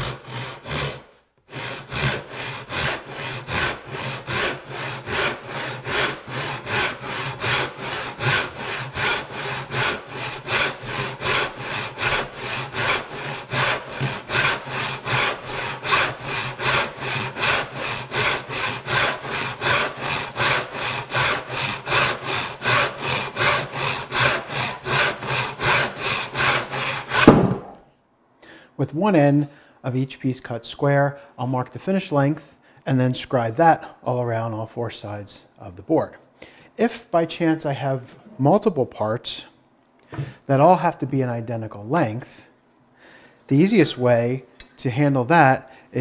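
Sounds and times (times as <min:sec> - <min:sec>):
hand saw cutting wood: 0:00.0 - 0:27.6.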